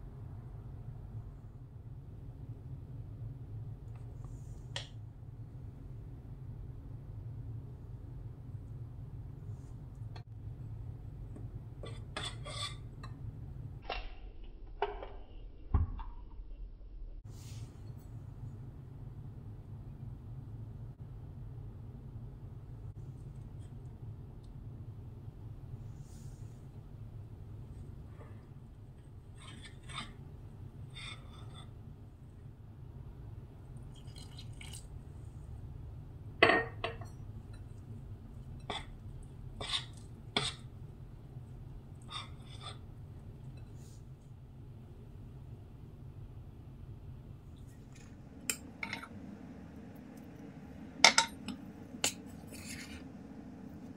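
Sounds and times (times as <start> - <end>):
spoon scraping in bowl: 11.8 - 13.0, 29.0 - 31.8, 39.6 - 40.7, 42.0 - 43.7, 52.0 - 53.2.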